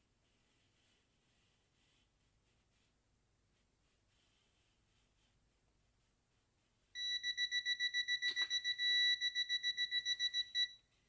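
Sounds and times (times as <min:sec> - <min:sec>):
stud finder beeping rapidly: 0:07.0 - 0:10.8
stud finder unbroken tone: 0:07.0 - 0:10.8.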